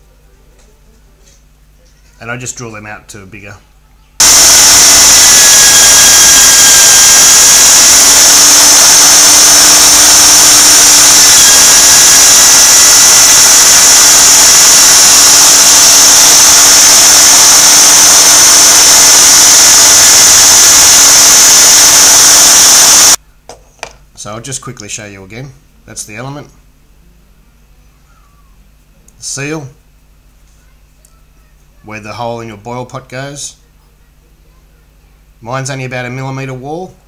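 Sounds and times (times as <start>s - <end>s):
drill press whining: 4.2s - 23.2s.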